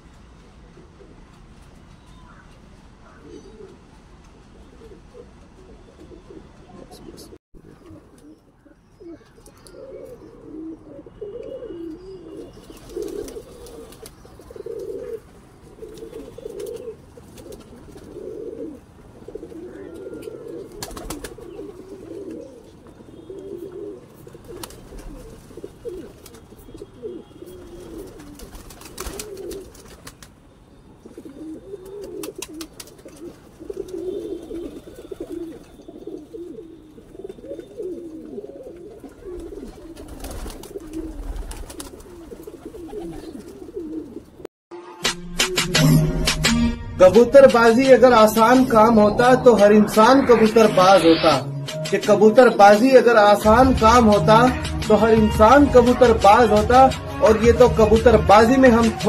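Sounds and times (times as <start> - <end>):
pigeons cooing: 3.0 - 3.9, 4.6 - 30.2, 31.0 - 44.5.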